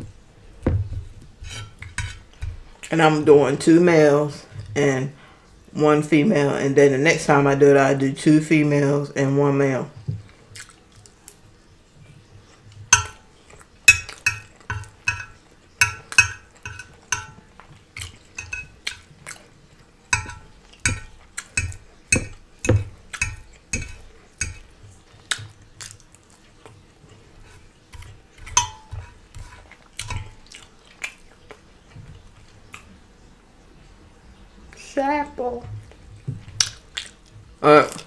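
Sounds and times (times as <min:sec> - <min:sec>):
fork clinking on serving dish: 0:12.9 - 0:13.3, 0:13.9 - 0:19.5, 0:20.1 - 0:24.7, 0:28.0 - 0:30.6.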